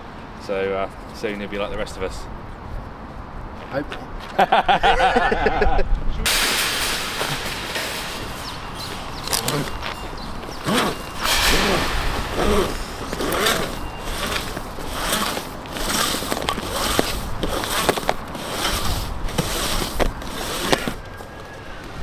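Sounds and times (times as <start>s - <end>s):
cable scraping plastic duct: 8.2s - 21.3s.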